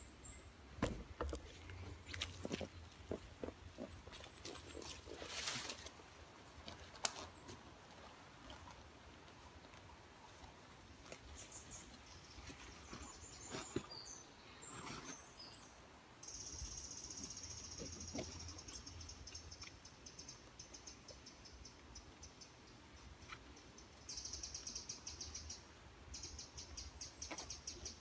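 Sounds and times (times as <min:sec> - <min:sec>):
small birds chirping: 0:11.1 - 0:28.0.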